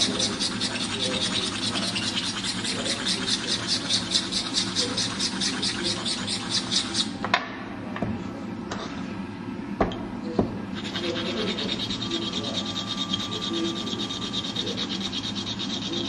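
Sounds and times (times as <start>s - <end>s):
file rasping on stone: 0.0s - 7.2s, 10.8s - 16.0s.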